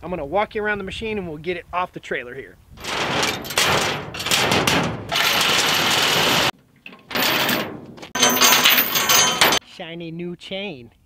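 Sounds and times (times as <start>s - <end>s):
steel chains rattling: 2.8s - 9.6s.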